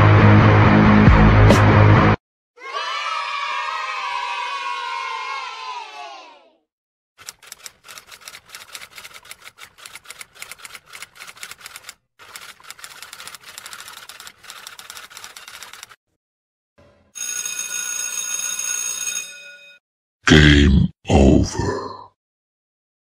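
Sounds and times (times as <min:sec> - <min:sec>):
typewriter keys clattering: 0:07.2 - 0:16.0
typewriter bell ringing: 0:17.2 - 0:19.8.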